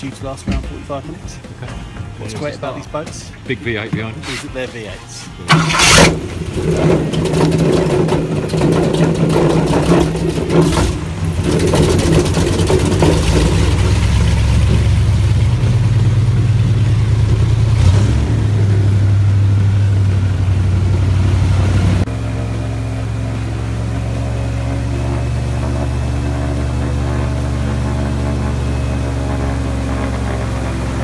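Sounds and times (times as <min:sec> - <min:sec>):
airboat engine running: 0:00.0 - 0:31.0.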